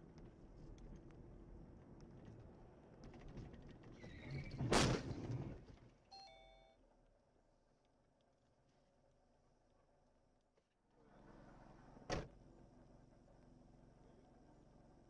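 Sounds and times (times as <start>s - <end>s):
short beep: 6.1s - 6.8s.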